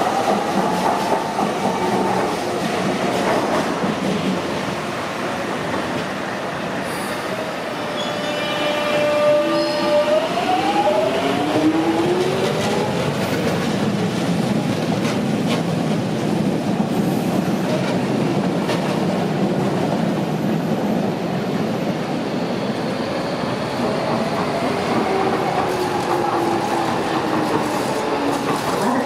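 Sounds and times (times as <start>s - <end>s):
train rumble: 9.9s - 22.9s, 23.5s - 29.0s.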